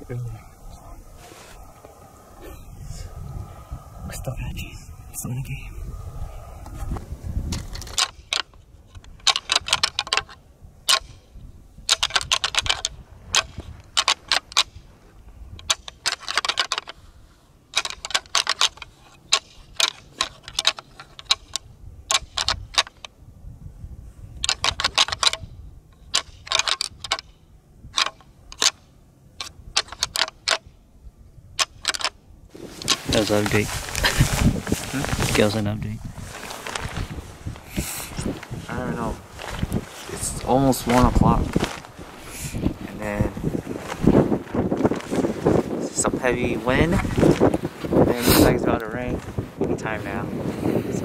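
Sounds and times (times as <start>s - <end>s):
deer antlers rattling together: 7.5s - 11.2s, 11.9s - 14.8s, 15.6s - 17.0s, 17.7s - 23.1s, 24.4s - 25.5s, 26.1s - 27.3s, 29.4s - 30.7s, 31.6s - 35.6s.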